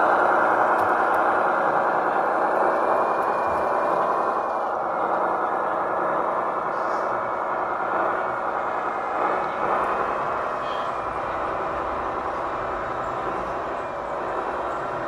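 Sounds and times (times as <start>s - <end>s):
toy trucks whirring: 0.0s - 4.9s.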